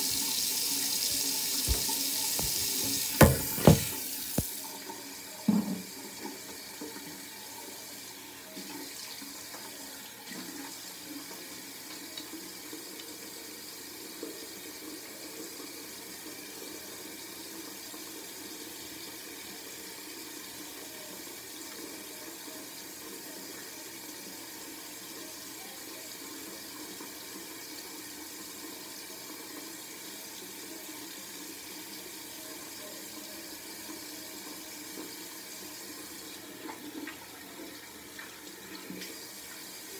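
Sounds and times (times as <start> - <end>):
tap running into a sink: 0.0 - 4.6, 5.4 - 6.0
soft knocks: 1.7 - 4.0.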